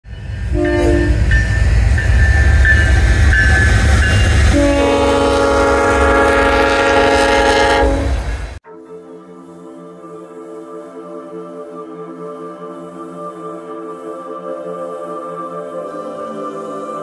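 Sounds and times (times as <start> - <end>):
train rumbling past: 0.0 - 8.6
locomotive horn: 0.5 - 1.4, 4.4 - 8.8.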